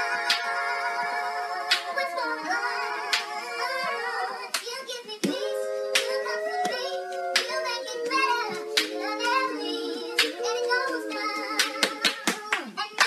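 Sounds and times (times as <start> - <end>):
sharp clap hits: 4.5 - 6.8, 10.2 - 10.4.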